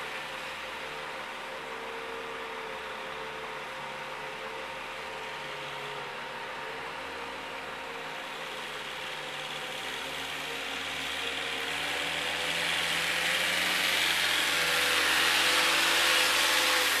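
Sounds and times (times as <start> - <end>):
forklift engine running: 5.0 - 17.0.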